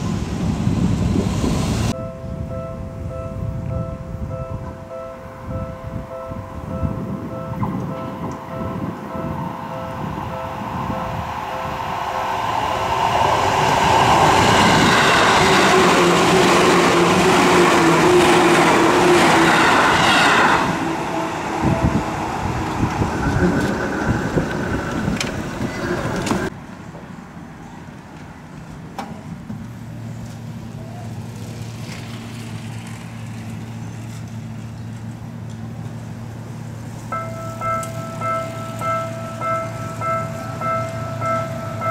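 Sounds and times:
street noise: 0.0s - 41.9s
train rumbling over rails: 0.0s - 41.9s
level crossing warning bell: 1.9s - 12.9s, 37.1s - 41.9s.

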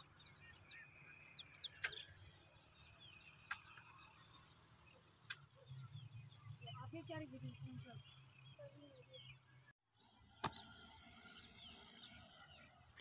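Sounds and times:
bird chirps: 0.0s - 13.0s
high insect drone: 10.1s - 13.0s.

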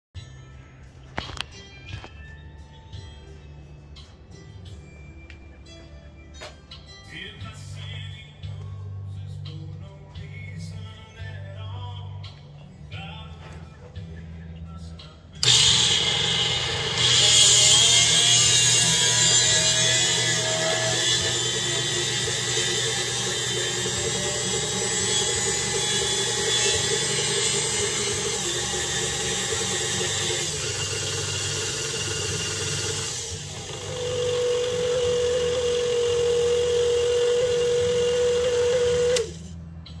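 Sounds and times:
stand mixer motor running: 15.4s - 39.4s.

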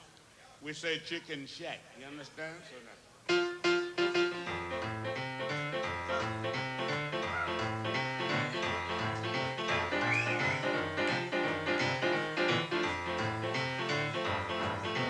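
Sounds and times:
piano playing up-tempo blues: 3.3s - 15.0s.

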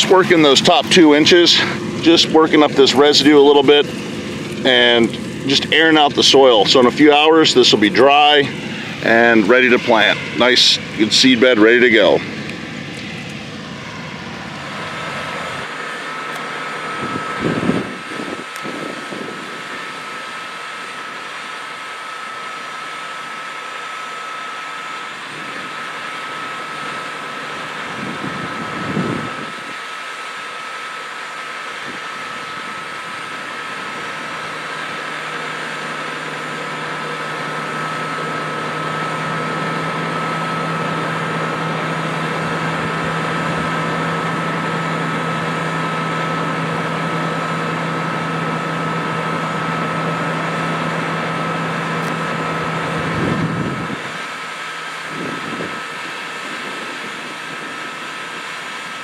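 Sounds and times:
low buffets: 0.0s - 21.3s
steady high whine: 0.0s - 59.0s
tractor diesel engine running: 0.0s - 59.0s.

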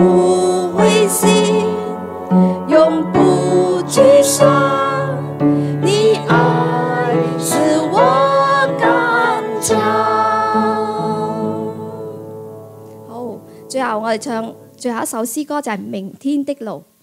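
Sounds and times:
woman singing into a microphone: 0.0s - 12.2s
instrumental accompaniment: 0.0s - 15.3s.

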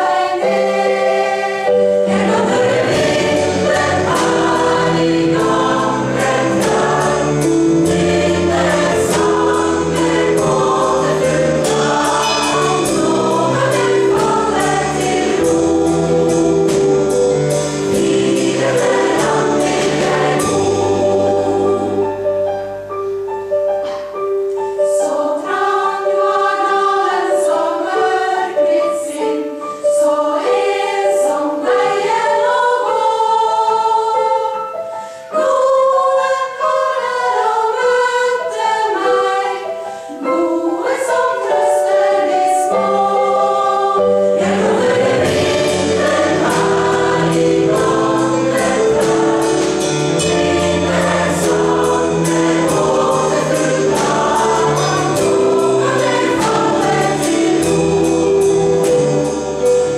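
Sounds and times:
choir singing in harmony: 0.0s - 59.9s
keyboard accompaniment: 0.0s - 59.9s
bass and drums: 3.0s - 21.7s, 44.8s - 59.9s.

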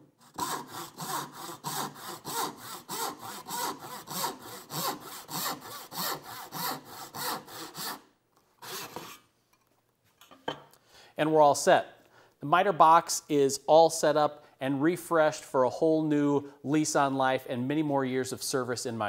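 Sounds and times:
hand saw cutting wood: 0.1s - 9.3s.

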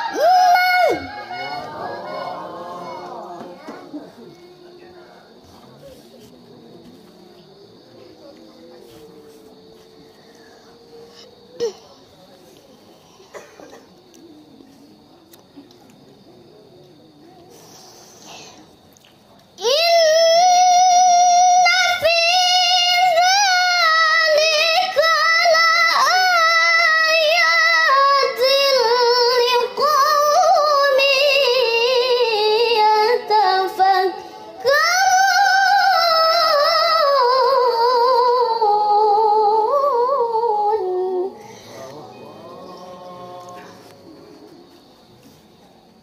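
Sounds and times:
girl chanting melodically: 0.0s - 4.0s, 19.6s - 41.9s
person breathing: 41.4s - 41.9s.

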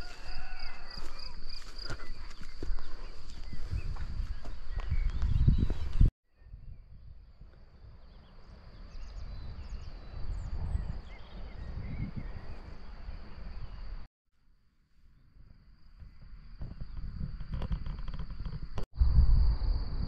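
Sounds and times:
birds chirping: 0.0s - 6.9s, 7.7s - 14.0s
wind rumbling on microphone: 0.0s - 14.1s, 15.3s - 20.0s.

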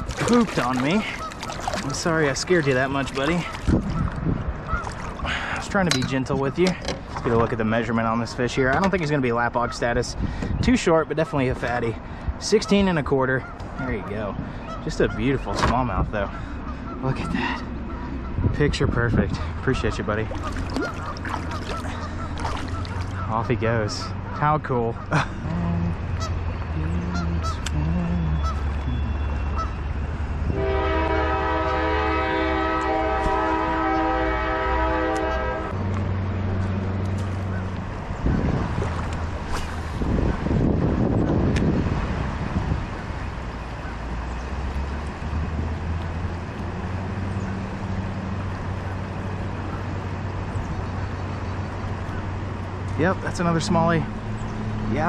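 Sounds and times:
river rushing: 0.0s - 3.8s, 20.2s - 23.3s
long horn blast: 30.5s - 35.9s.

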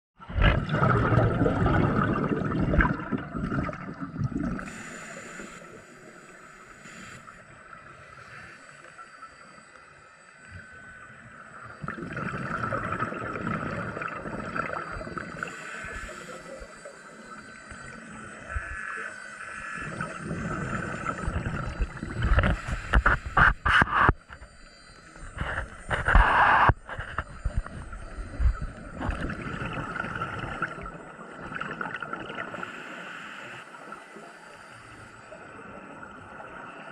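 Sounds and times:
diver's air bubbling underwater: 0.2s - 4.7s, 11.8s - 15.4s, 27.4s - 32.6s.

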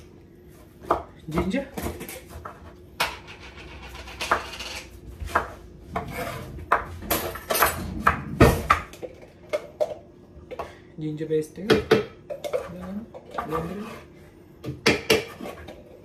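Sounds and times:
knife scraping board: 3.6s - 6.9s, 13.4s - 14.1s.

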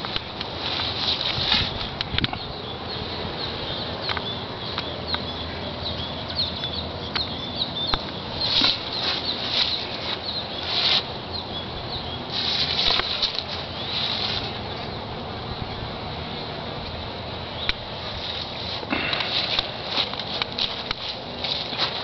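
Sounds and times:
rustling bursts: 0.0s - 2.2s, 12.3s - 14.7s, 18.0s - 22.0s
steady noisy hiss: 0.0s - 22.0s.

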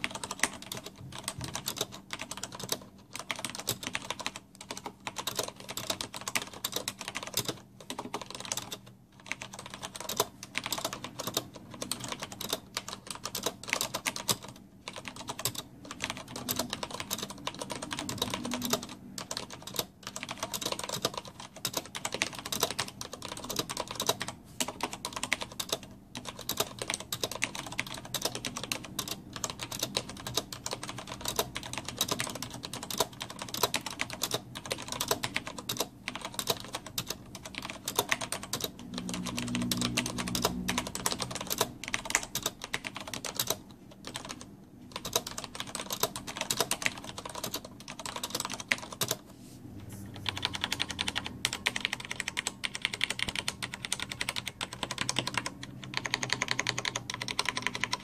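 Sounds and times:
fast mechanical keyboard typing: 0.0s - 49.2s, 50.1s - 58.0s.

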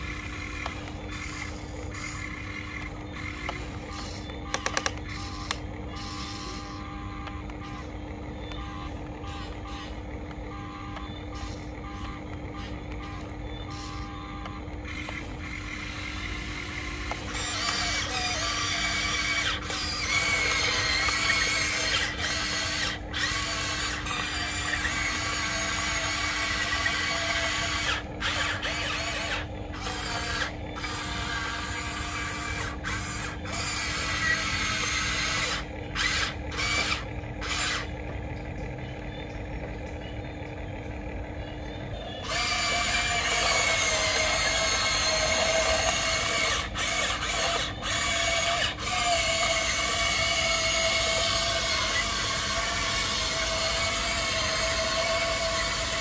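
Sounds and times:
small electric motors whining: 0.0s - 56.0s
steady low hum: 0.0s - 56.0s.

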